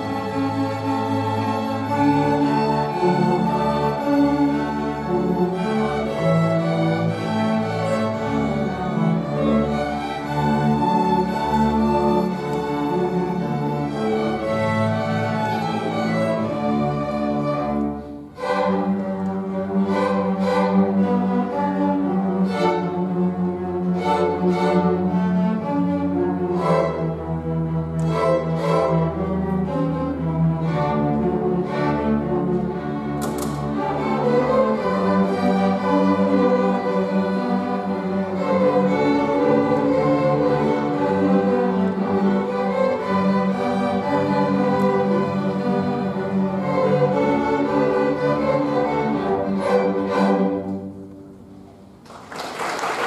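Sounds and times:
string orchestra playing: 0.0s - 53.0s
applause: 52.0s - 53.0s.

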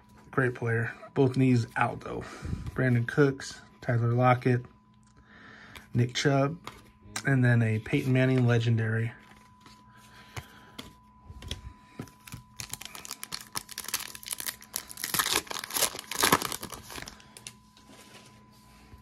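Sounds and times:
foil wrapper tearing and crinkling: 12.2s - 17.5s.

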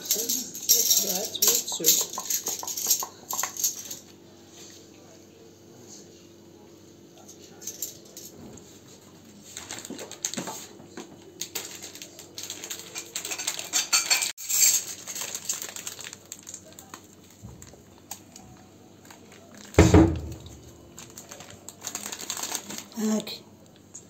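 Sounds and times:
metal spoons and dishes clinking: 0.0s - 4.1s, 12.6s - 15.2s.

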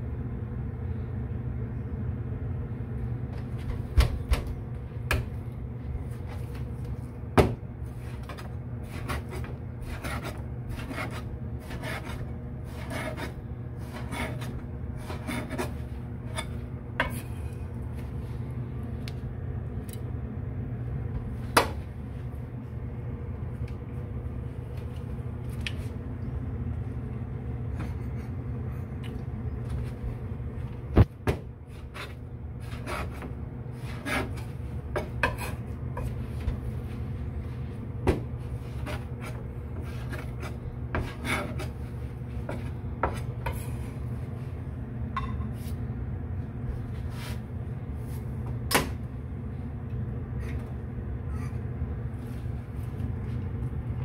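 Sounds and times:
steady low hum: 0.0s - 54.0s
knife scraping fish: 8.3s - 16.5s, 38.7s - 41.8s.

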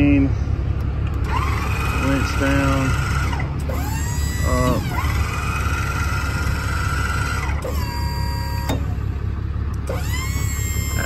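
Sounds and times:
crane motor whining: 0.5s - 11.0s.

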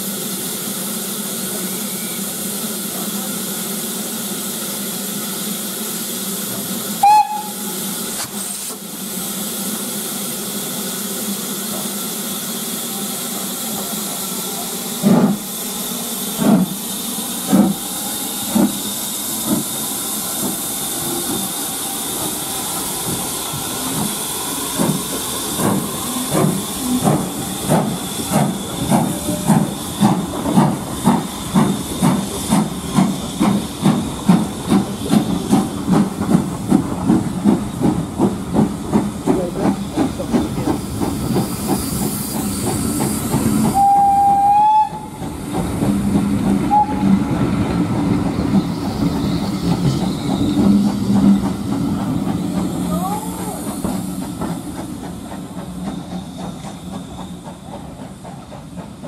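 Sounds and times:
steam hissing: 0.0s - 59.0s
steam locomotive exhaust chuffs: 0.0s - 59.0s
steam locomotive whistle: 7.0s - 7.9s, 43.7s - 45.2s, 46.7s - 47.3s.

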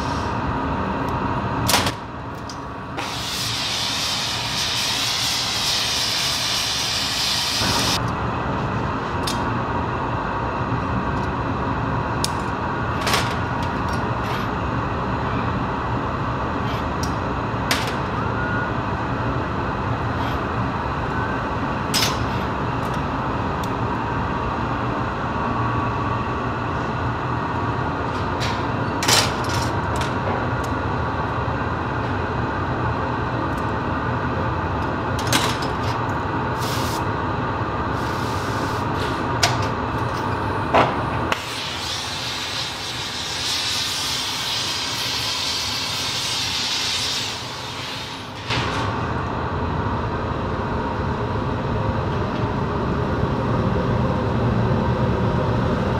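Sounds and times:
furnace roaring: 0.0s - 55.9s
higher hiss: 41.4s - 48.4s.

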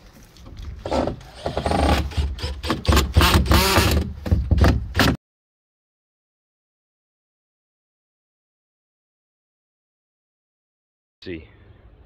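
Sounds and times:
cordless drill driving screws: 0.8s - 4.1s
wood knocking: 0.9s - 5.2s.

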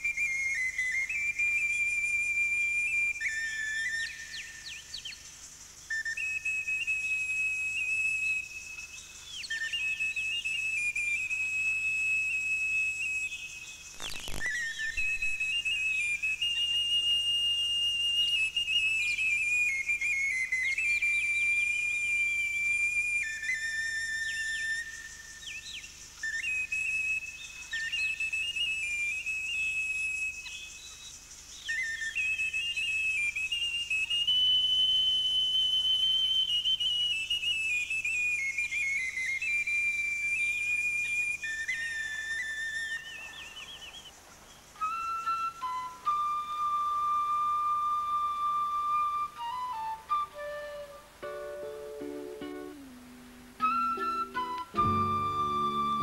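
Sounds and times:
high whistle-like melody: 0.0s - 5.0s, 5.9s - 44.1s, 44.8s - 56.0s
sharp click: 14.0s - 15.4s
chirp-like glides: 42.8s - 44.7s.

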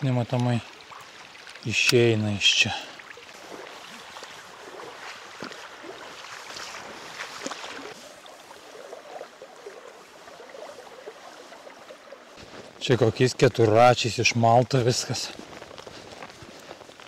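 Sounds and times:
stream water running: 0.0s - 17.0s
feet splashing through water: 2.6s - 12.8s, 15.0s - 17.0s.

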